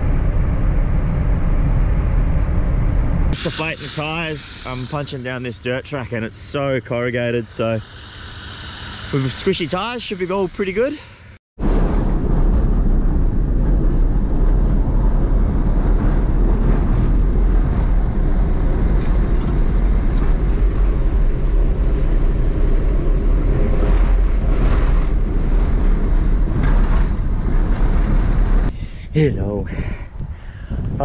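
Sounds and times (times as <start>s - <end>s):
vehicle rumbling on dirt track: 11.6s - 28.7s.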